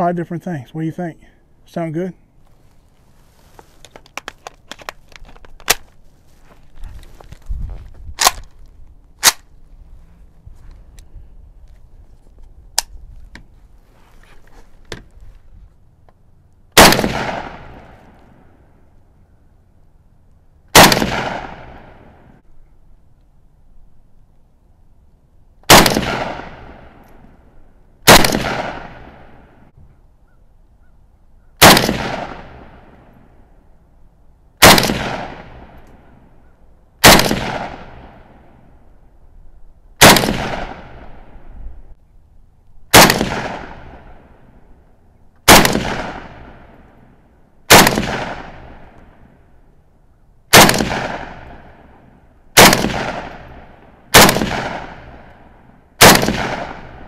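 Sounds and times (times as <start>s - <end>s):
rifle shots echoing: 16.8s - 18.5s, 20.7s - 22.4s, 25.7s - 27.2s, 28.0s - 29.7s, 31.6s - 33.3s, 34.6s - 36.3s, 37.0s - 38.7s, 40.0s - 41.5s, 42.9s - 44.6s, 45.4s - 49.4s, 50.5s - 57.0s.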